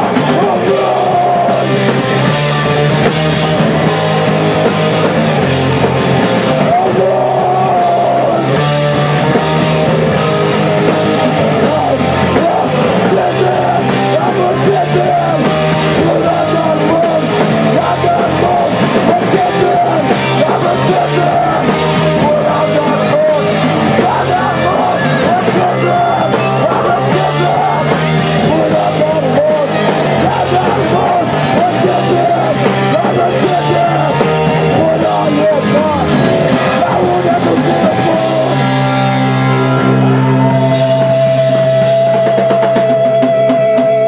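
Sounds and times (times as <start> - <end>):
bass guitar: 0.0 - 44.0
distorted electric guitars: 0.0 - 44.0
vocalist screaming: 11.2 - 41.7.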